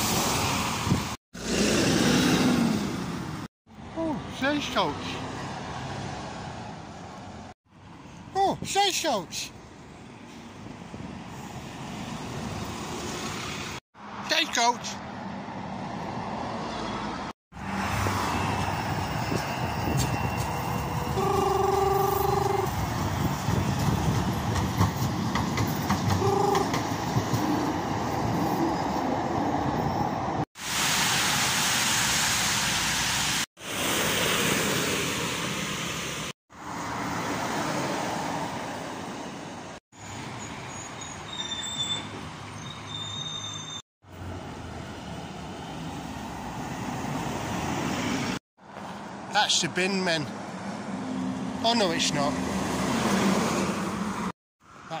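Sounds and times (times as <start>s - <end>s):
road traffic passing: 0.0s - 55.0s
tram running by: 15.2s - 30.4s
vehicle horn: 21.0s - 22.8s, 26.2s - 26.8s.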